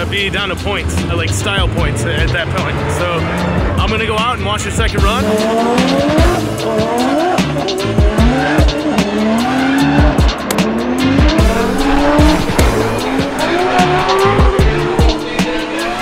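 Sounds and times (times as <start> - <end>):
car engine revving: 0.0 - 16.0
music with steady beat: 0.0 - 16.0
tires squealing: 5.2 - 16.0.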